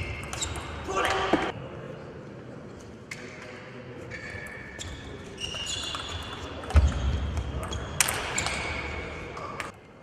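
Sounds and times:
sneaker squeaks on floor: 0.0 - 0.8, 4.1 - 9.0.

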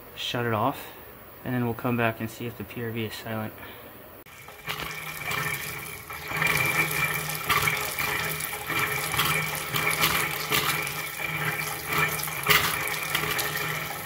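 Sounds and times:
faucet spurting into sink: 4.3 - 14.0.

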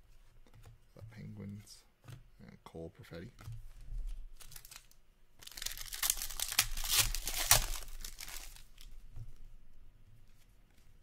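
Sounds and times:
foil wrapper tearing and crinkling: 4.4 - 8.9.

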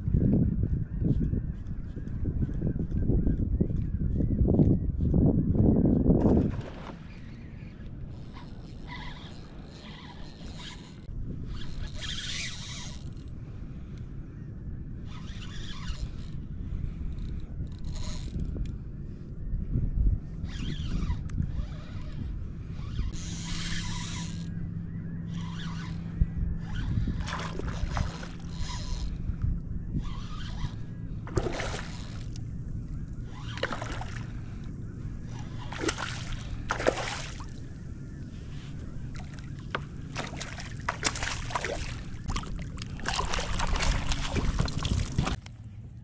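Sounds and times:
steady low hum: 0.0 - 46.0
fish splashing at surface: 40.2 - 45.4.

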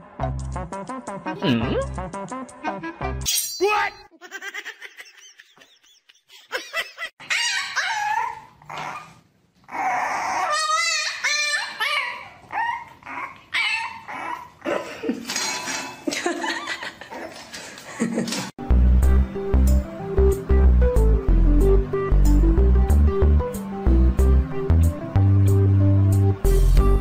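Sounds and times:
puppy whining and yipping: 7.2 - 14.6.

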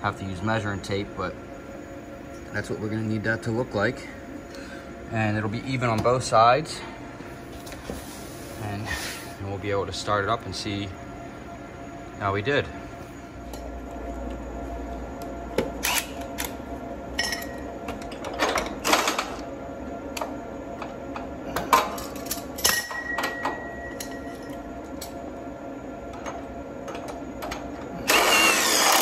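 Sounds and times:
steady hum: 0.0 - 29.0
cordless drill running: 28.0 - 29.0.

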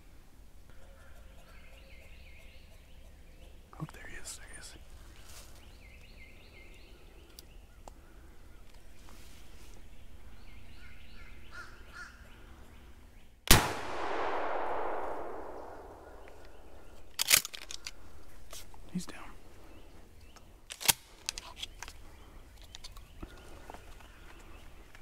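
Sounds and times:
shotgun shot with echo: 13.5 - 16.4.

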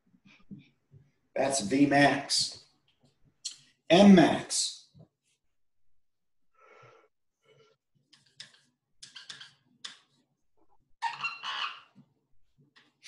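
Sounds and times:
marker scratching on whiteboard: 8.1 - 10.4, 11.0 - 13.0.

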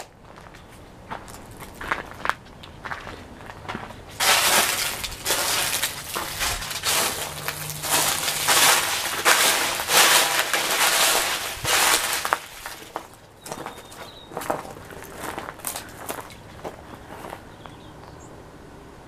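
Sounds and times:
footsteps crunching dry leaves: 4.1 - 17.5.

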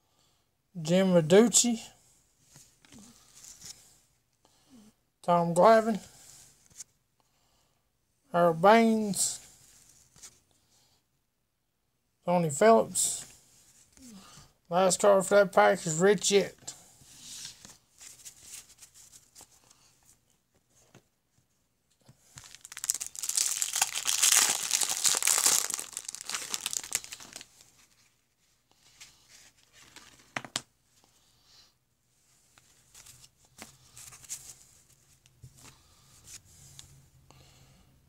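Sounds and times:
cards rustling: 22.2 - 28.1, 28.9 - 30.7
wrapper tearing and crumpling: 22.3 - 27.6.

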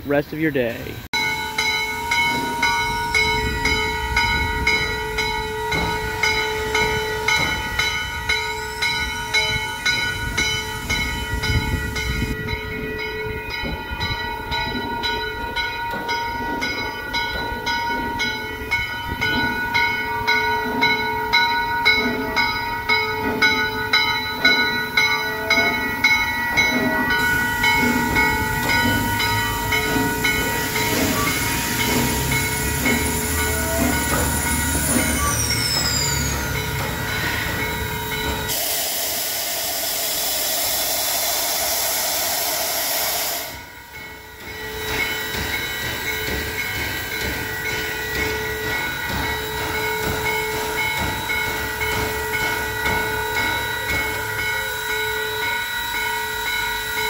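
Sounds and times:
steam hissing: 22.0 - 57.0.

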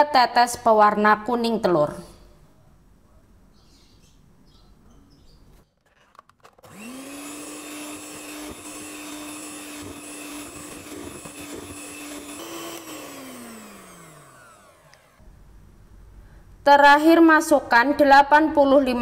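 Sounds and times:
electric hand mixer whining: 6.6 - 15.2.

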